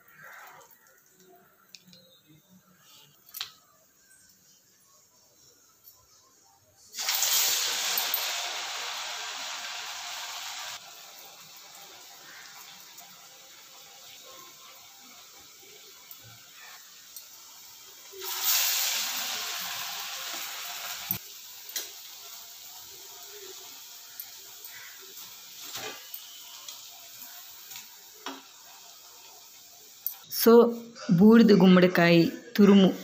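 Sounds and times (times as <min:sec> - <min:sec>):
food sizzling in hot oil: 0:06.9 - 0:30.5.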